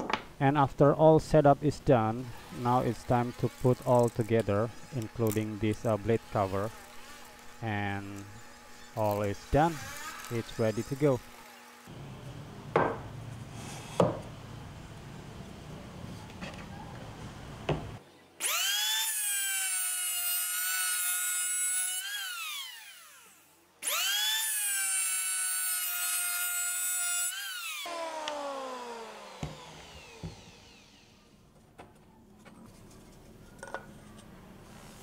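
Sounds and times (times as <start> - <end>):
electric planer motor whine: 18.4 - 31.4.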